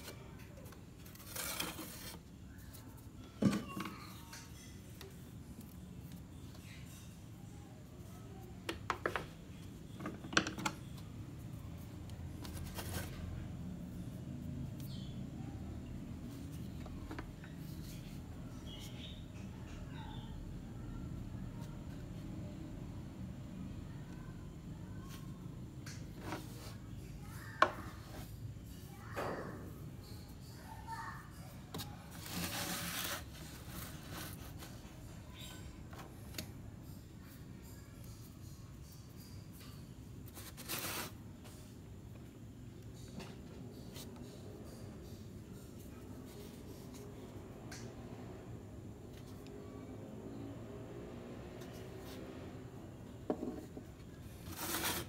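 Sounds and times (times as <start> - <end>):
twigs scraping rustle: 32.1 - 34.8.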